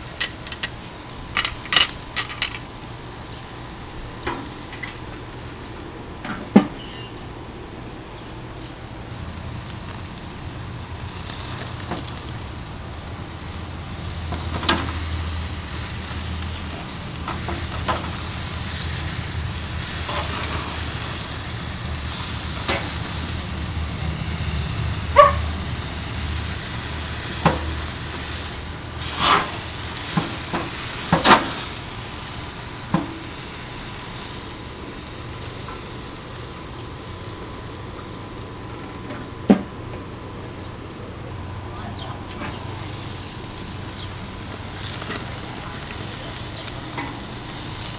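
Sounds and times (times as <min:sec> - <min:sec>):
steaks sizzling on grill: 0:00.0 - 0:47.9
tongs clanking on grate: 0:01.4 - 0:02.7
grill lid clanking shut: 0:29.1 - 0:31.6.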